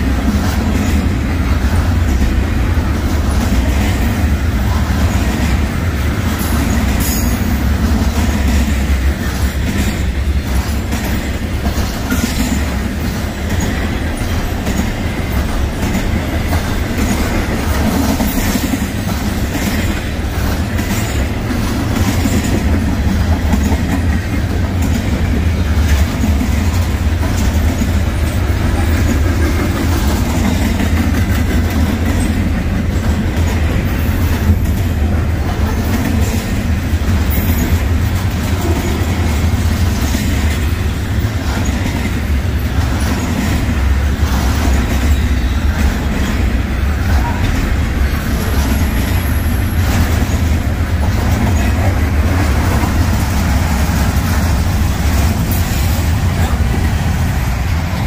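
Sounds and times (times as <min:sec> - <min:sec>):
freight train rumbling past: 0:00.0 - 0:58.0.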